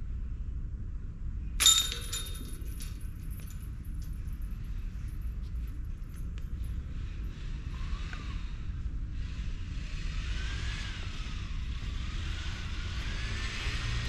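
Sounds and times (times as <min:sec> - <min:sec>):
low fluttering rumble: 0:00.0 - 0:14.0.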